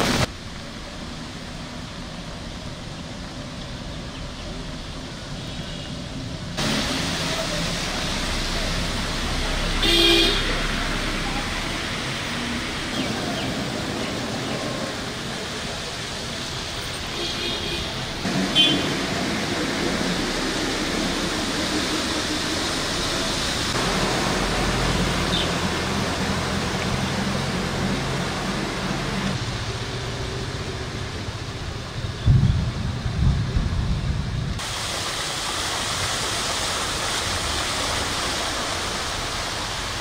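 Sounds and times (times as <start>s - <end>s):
water splashing and churning: 0.0s - 32.1s, 34.2s - 40.0s
traffic noise: 0.0s - 40.0s
vehicle engine low hum: 17.9s - 34.7s.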